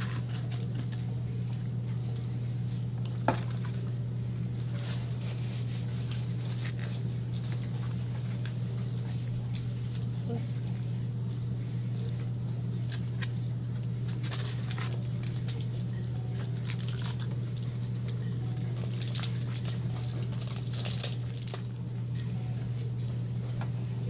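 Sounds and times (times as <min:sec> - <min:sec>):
steady low hum: 0:00.0 - 0:24.0
person chewing crunchy food: 0:14.1 - 0:21.8.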